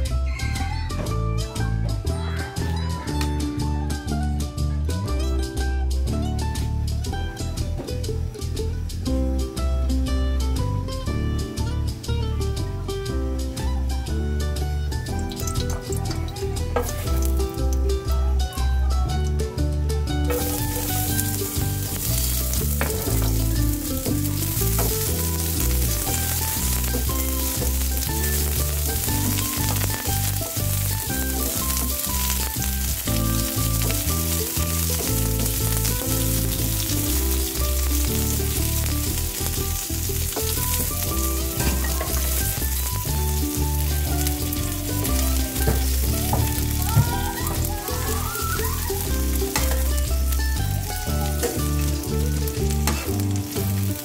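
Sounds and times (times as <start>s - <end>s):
background music: 0.0s - 54.0s
onions sizzling in hot oil: 6.3s - 54.0s
spatula stirring in a pan: 20.3s - 50.0s.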